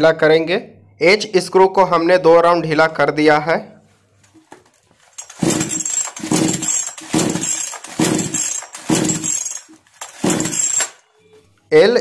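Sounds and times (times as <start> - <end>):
starter rope pulled: 4.3 - 11.0
chainsaw engine turning over: 5.1 - 11.0.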